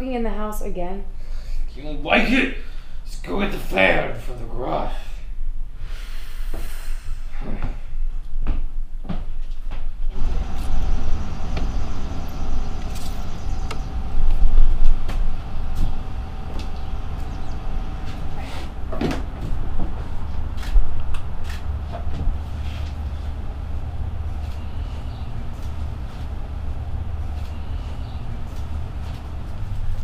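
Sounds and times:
footsteps: 0:08.4 - 0:30.0
low rumble: 0:10.0 - 0:30.0
shed doors clattering: 0:14.9 - 0:20.6.

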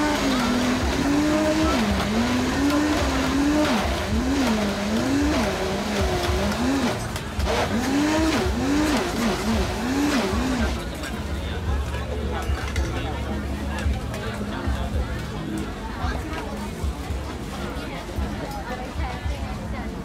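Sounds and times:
blender motor whining: 0:00.0 - 0:10.8.

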